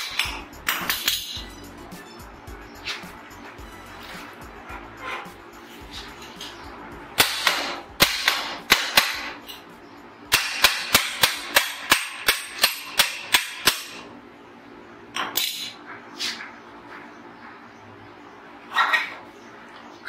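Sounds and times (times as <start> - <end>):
sharp metal knocks: 0.0 - 1.6, 7.2 - 9.7, 10.3 - 14.1.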